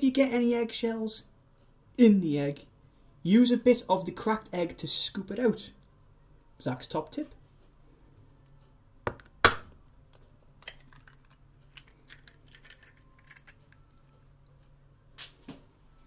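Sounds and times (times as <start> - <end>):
eggshell crackling: 10.0 - 14.8.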